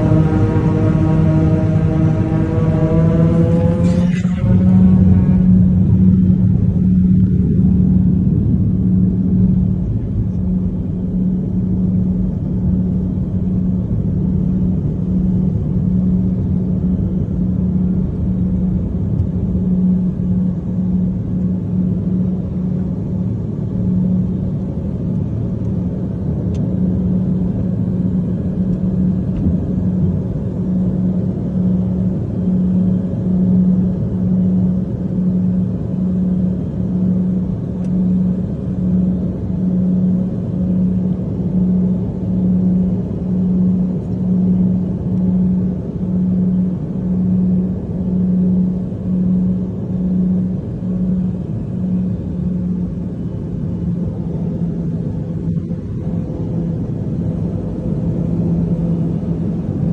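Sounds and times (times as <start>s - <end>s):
low rumble: 0.0s - 33.2s
turboprop engines droning: 0.0s - 59.9s.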